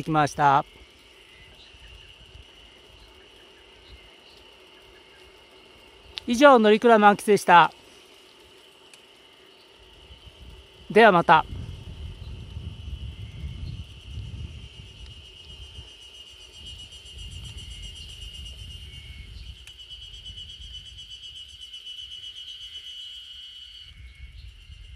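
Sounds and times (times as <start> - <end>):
high pulsing insect or bird trill: 0.0 - 24.9
wind gusting on microphone: 9.9 - 21.4, 23.8 - 24.9.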